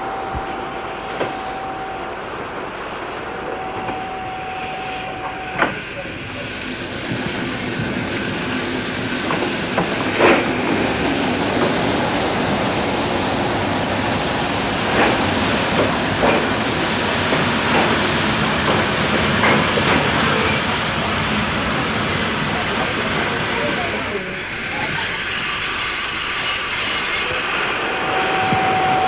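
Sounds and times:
train wheels rumbling: 0:00.0 - 0:29.0.

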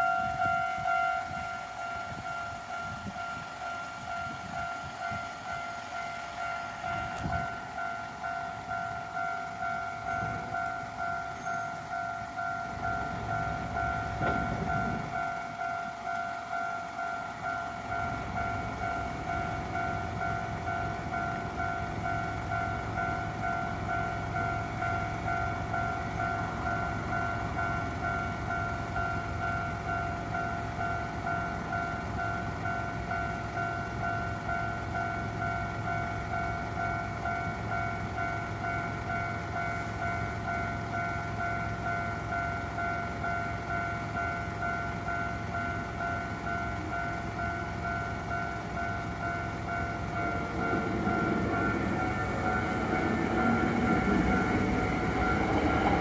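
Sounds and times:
level crossing warning bell: 0:00.0 - 0:56.0
low rumble: 0:49.4 - 0:56.0.

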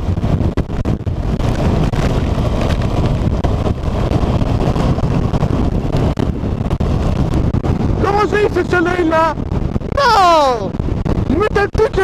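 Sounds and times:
motorcycle engine running: 0:00.0 - 0:11.3
wind buffeting microphone: 0:00.0 - 0:12.0.

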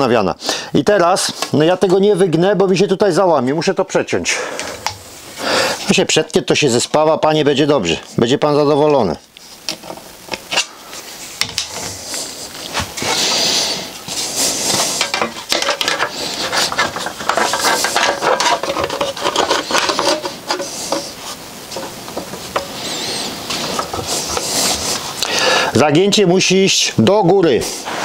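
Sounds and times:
steel sheet scraping and clanking: 0:14.6 - 0:21.9.

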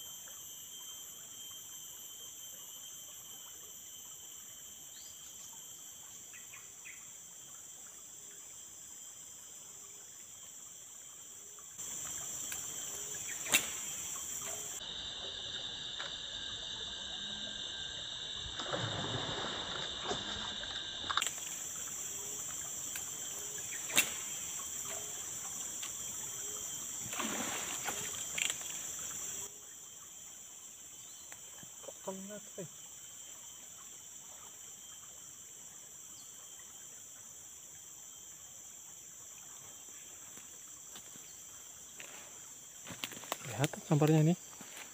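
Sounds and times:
forest insects buzzing: 0:00.0 - 0:44.9
sharp clicks: 0:23.9 - 0:24.3.

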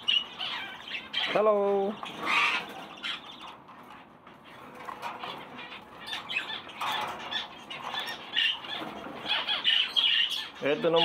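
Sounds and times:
parrots chirping and chattering: 0:00.0 - 0:11.0.

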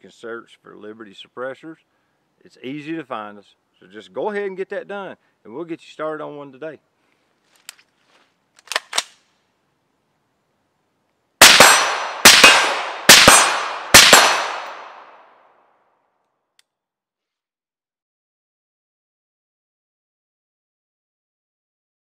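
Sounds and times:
rifle handling clicks: 0:08.5 - 0:09.2
suppressed rifle shots with echo: 0:11.4 - 0:15.3.

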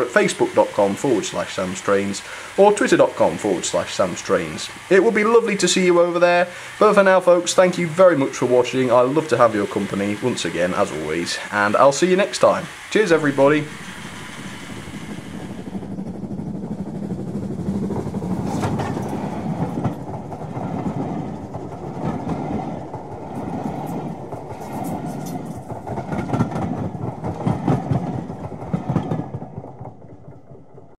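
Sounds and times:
train carriages rumbling: 0:00.0 - 0:31.0
wheels clacking over rail joints: 0:07.3 - 0:31.0.

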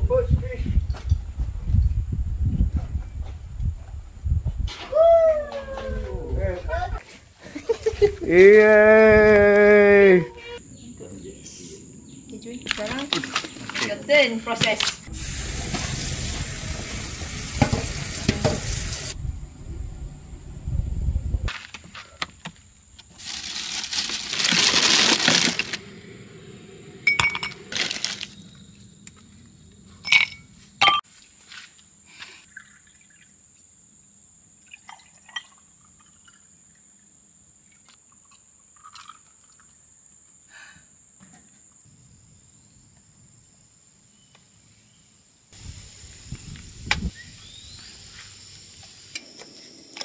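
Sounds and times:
tap water running into sink: 0:15.2 - 0:19.2
glass bottles clinking: 0:27.1 - 0:28.0, 0:30.0 - 0:31.0.

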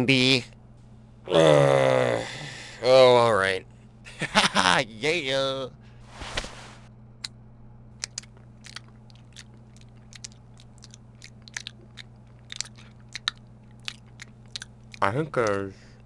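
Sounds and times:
person chewing candy bar: 0:08.0 - 0:16.0.

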